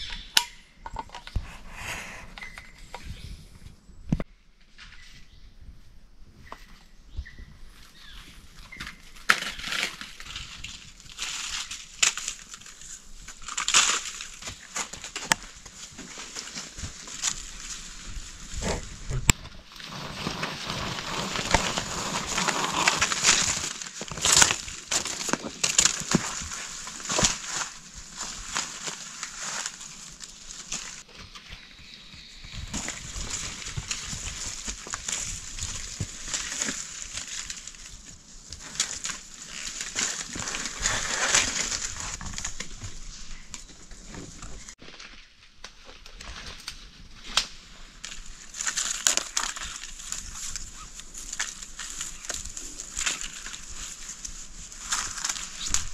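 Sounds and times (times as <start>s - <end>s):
dry leaves crunching: 7.8s - 55.9s
rope scraping: 13.5s - 31.1s, 32.6s - 44.8s.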